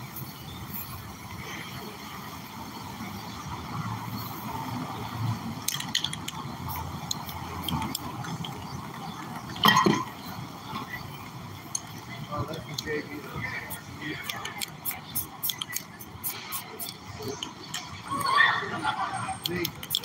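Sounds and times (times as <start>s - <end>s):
steady background noise: 0.0s - 20.0s
cans and tools clinking on metal: 9.6s - 10.1s.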